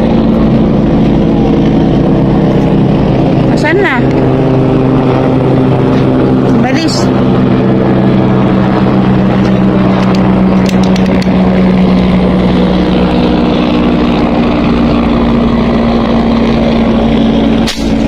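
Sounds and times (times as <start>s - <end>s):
engine droning: 0.0s - 18.0s.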